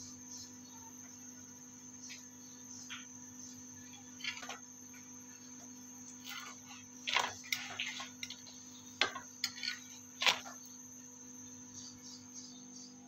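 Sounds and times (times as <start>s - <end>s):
steady hum: 0.0s - 13.0s
flatbread slapping on griddle: 6.2s - 10.6s.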